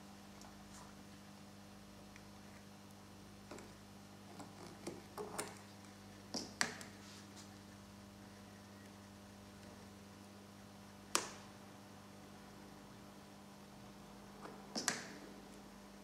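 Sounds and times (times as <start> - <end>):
faint mains hum: 0.0 - 16.0.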